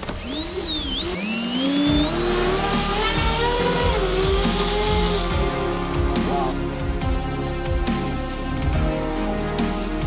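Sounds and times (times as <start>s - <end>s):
electric fan whining: 0.0s - 6.3s.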